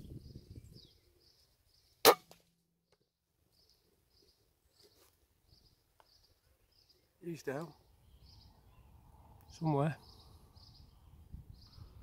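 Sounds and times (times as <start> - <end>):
air rifle shot: 2.1 - 2.4.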